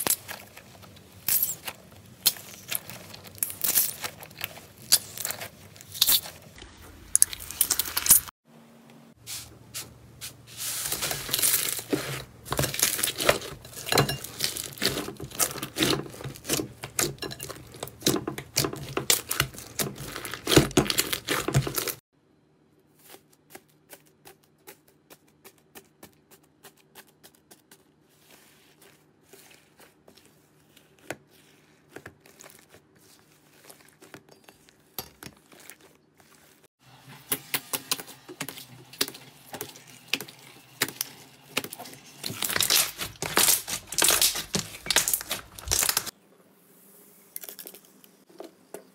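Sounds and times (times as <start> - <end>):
soft squishing: 0.0 - 8.3, 9.3 - 22.0, 22.9 - 36.7, 37.9 - 46.1
slime crackling and popping: 42.2 - 46.1.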